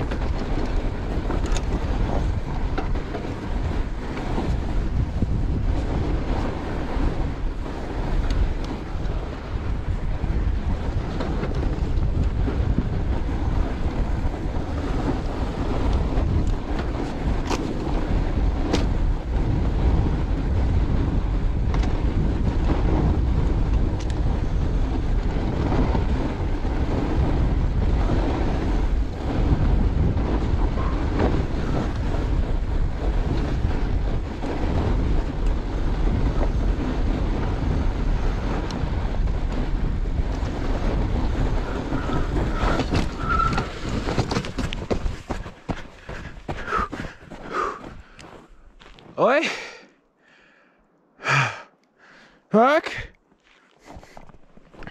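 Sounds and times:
sharp clicks from bike: 0.0s - 3.4s, 15.8s - 18.0s
wind rush on microphone: 0.0s - 49.7s.

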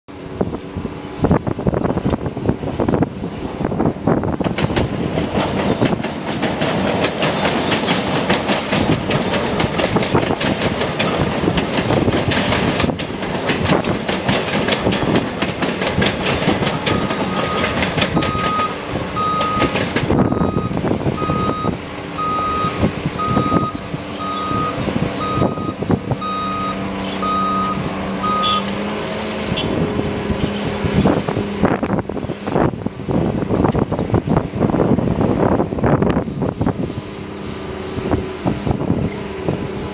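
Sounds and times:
wind buffeting microphone: 0.1s - 26.9s, 29.4s - 39.9s
electric train passing: 0.1s - 39.9s
electronic beeps: 16.9s - 28.6s.

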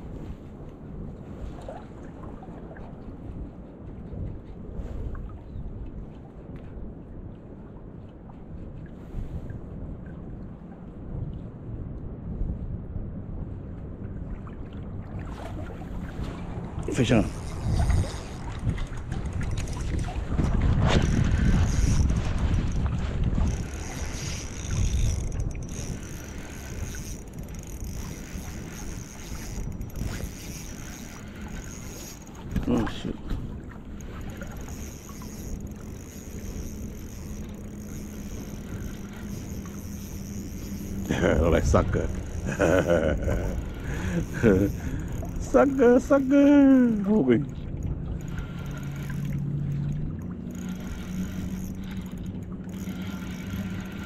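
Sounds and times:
wind buffeting microphone: 0.0s - 54.0s
distant motor humming: 15.6s - 32.8s, 33.6s - 46.3s, 46.9s - 54.0s.

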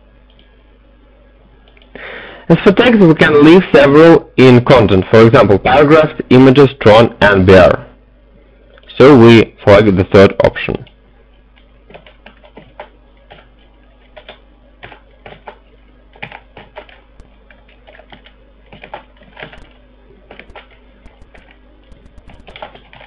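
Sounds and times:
typing on computer keyboard: 11.9s - 23.0s.

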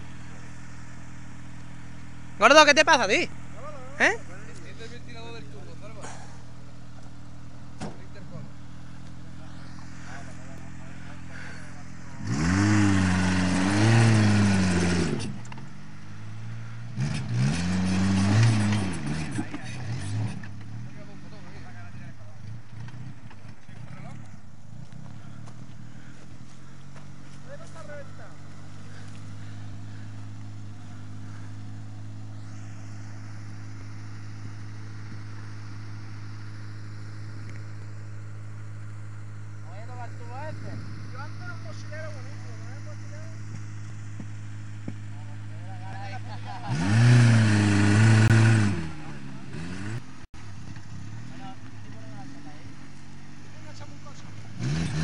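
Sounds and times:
engine running at low revs: 0.0s - 55.0s
engine revving hard: 9.3s - 15.5s, 16.3s - 21.8s, 45.3s - 50.3s, 53.6s - 55.0s.

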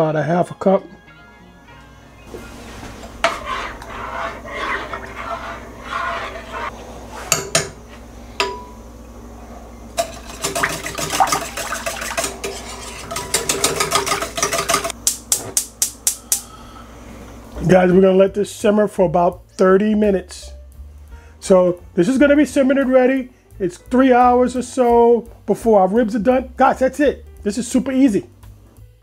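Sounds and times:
whisk whisking in a pot: 2.5s - 7.5s, 10.0s - 15.0s
spoon stirring sauce in a pot: 3.0s - 6.7s, 10.0s - 14.9s
metal clinking on a pot: 8.4s - 8.8s.

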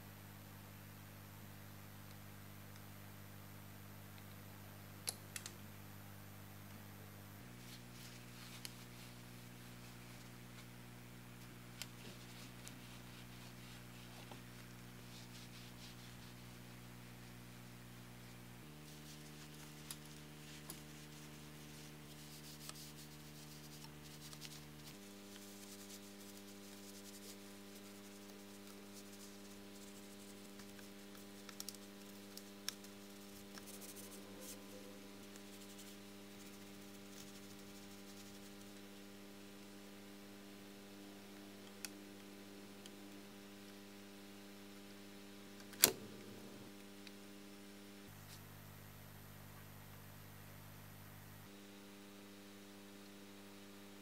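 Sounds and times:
faint electrical hum: 0.0s - 54.0s
cloth rubbing tape heads: 11.4s - 17.4s, 18.2s - 38.8s
soft clicks on tape deck: 45.6s - 46.3s.

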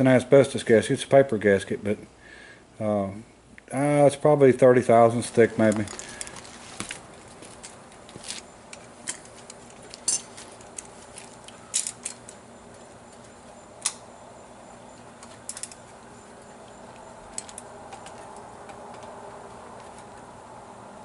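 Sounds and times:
steady low hum: 0.0s - 21.0s
metal tools clinking on pot: 9.0s - 10.9s.

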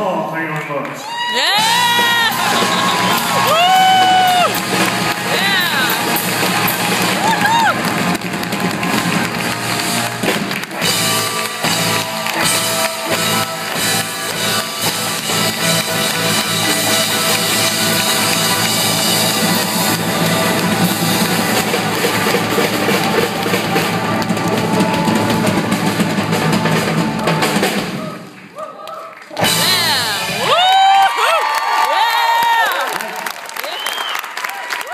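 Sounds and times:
electric and acoustic guitars: 1.3s - 27.4s
drum kit fast beat: 1.4s - 28.2s, 29.4s - 30.9s.

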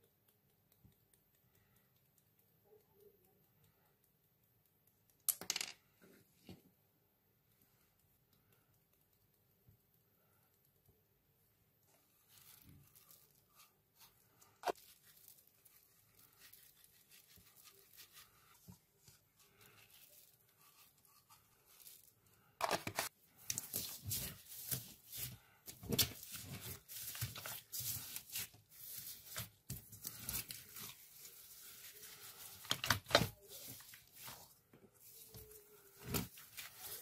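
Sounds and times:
beads ticking: 0.0s - 6.0s
slime crackling and squishing: 12.0s - 22.5s, 23.3s - 37.0s.

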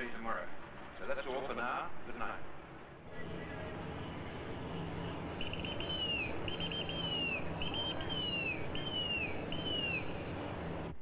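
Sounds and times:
steady low rumble: 0.0s - 11.0s
high whistled call: 5.4s - 10.8s.

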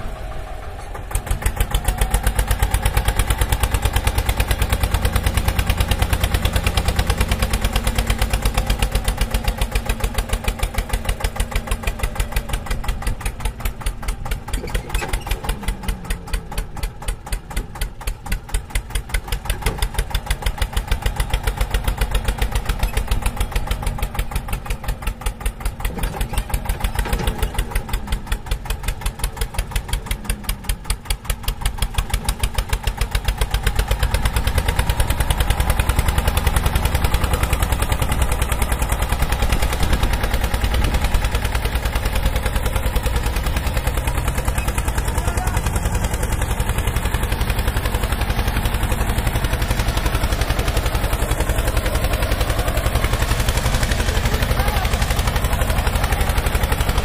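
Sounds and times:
diesel tractor engine chugging: 0.0s - 57.0s.

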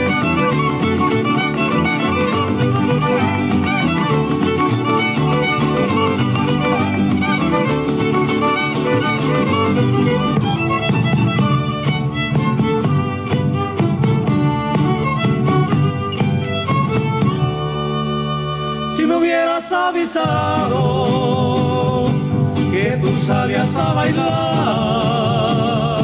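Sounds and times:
rhythmic accompaniment: 0.0s - 18.7s
violins playing folk dance tune: 0.0s - 26.0s.

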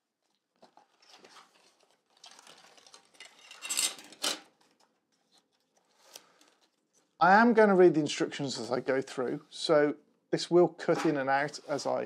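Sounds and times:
plastic packaging crinkling: 0.3s - 7.0s.

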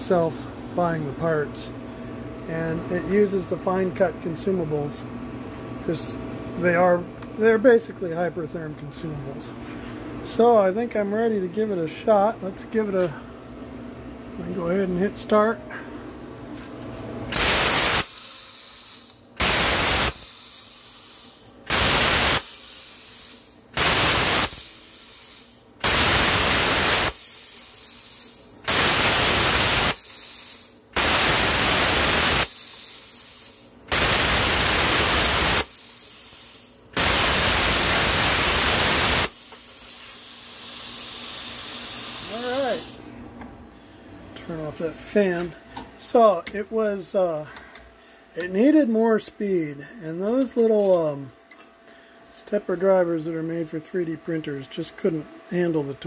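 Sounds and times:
plasma cutter hissing: 17.3s - 43.0s
steady hiss of air: 17.3s - 43.2s.

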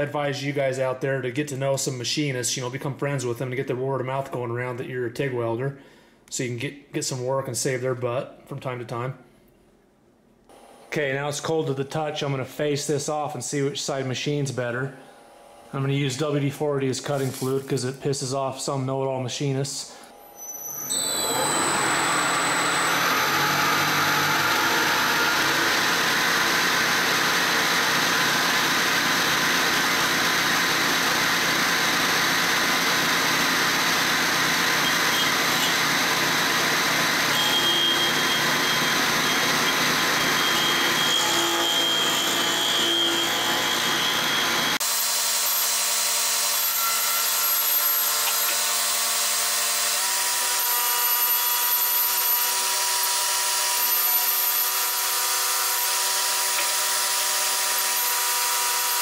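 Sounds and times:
steady machine tones: 20.2s - 44.8s
milling cutter cutting metal: 20.3s - 59.0s.

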